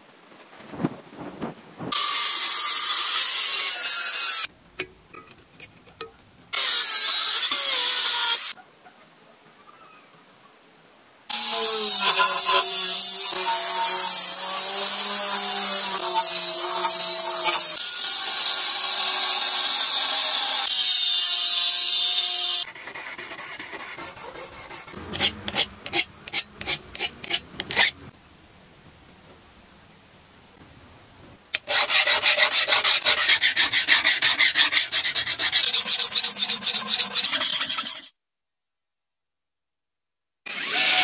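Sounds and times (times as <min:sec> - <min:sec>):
angle grinder grinding steel: 0:01.9 - 0:04.5, 0:06.5 - 0:08.5, 0:11.3 - 0:22.7, 0:23.5 - 0:28.0, 0:31.6 - 0:38.1, 0:40.5 - 0:41.0
quick scraping strokes: 0:31.6 - 0:38.1.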